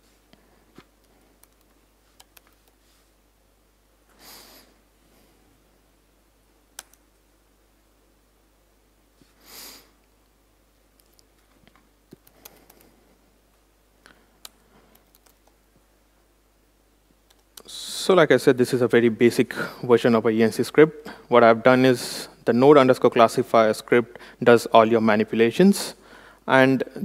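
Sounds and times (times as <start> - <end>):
laptop keyboard typing: 1.1 - 2.8, 14.4 - 15.6
breathy sniffs: 4.2 - 4.8.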